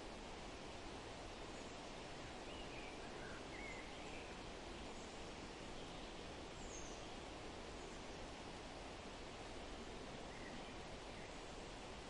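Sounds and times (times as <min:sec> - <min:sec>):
outdoor nature ambience hiss: 0:00.0 - 0:12.0
faint bird chirps: 0:01.4 - 0:08.4, 0:09.7 - 0:11.7.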